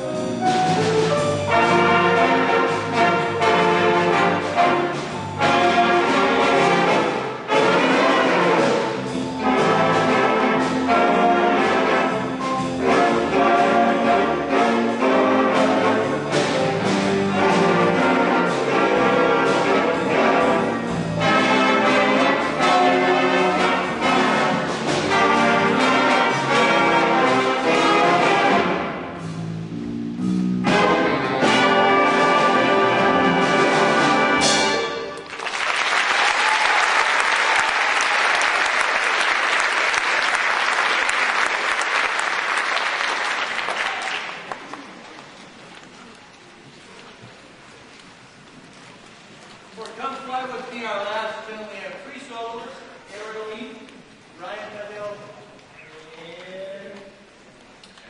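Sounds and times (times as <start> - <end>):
big band brass playing: 0.0 - 44.6
piano: 0.0 - 50.1.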